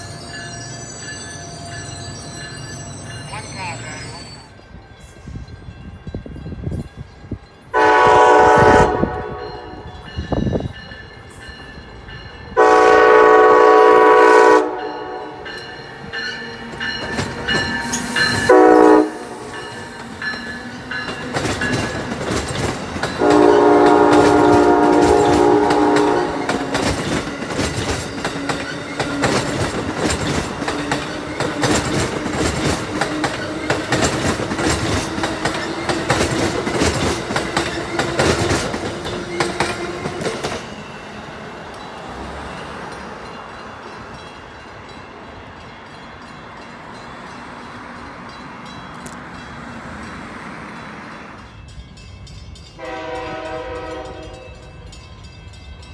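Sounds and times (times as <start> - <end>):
train air horn blasts: 7.7 - 9.9, 12.6 - 15.4, 18.4 - 19.5, 23.2 - 26.8, 52.8 - 54.6
train wheels clacking on rail joints: 15.4 - 41.0.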